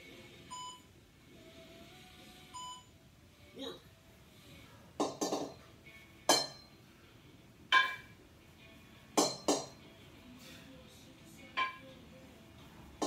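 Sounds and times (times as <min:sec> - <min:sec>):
kettlebells clinking together: 0:05.0 - 0:05.6, 0:06.3 - 0:06.8, 0:07.7 - 0:08.2, 0:09.2 - 0:09.8, 0:11.5 - 0:11.9.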